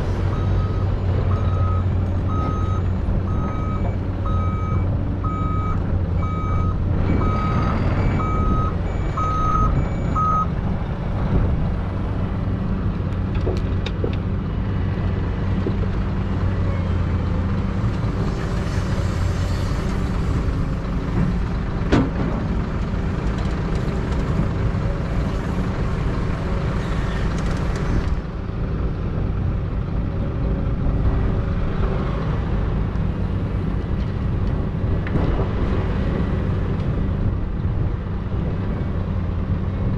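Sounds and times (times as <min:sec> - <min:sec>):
diesel engines droning: 0:00.0 - 0:39.9
truck reversing alarm beeping: 0:00.3 - 0:10.5.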